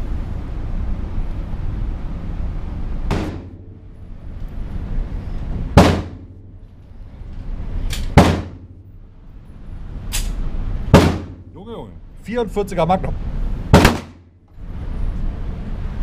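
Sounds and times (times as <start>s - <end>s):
steady low hum: 0.0s - 16.0s
echoing gunshots: 3.1s - 3.8s, 5.8s - 6.4s, 8.1s - 8.8s, 10.9s - 11.4s, 13.7s - 14.2s.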